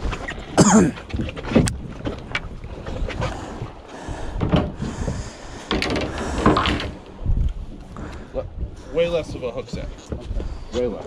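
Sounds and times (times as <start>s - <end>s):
wind buffeting microphone: 0.0s - 11.0s
fishing gear knocks and clicks: 5.6s - 7.6s.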